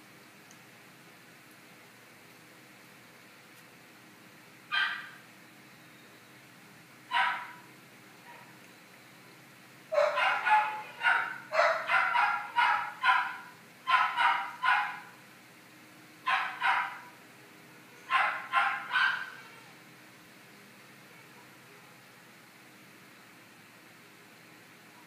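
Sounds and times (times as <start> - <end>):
dog barking: 4.7 - 5.2, 7.1 - 7.6, 9.9 - 15.2, 16.3 - 17.1, 18.1 - 19.5.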